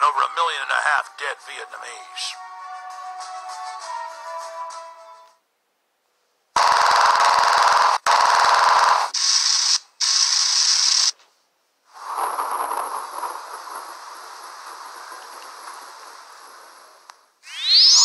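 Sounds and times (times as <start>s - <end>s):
machine-gun fire bursts: 6.6s - 11.1s
rush of noise with high whine: 11.9s - 18.0s.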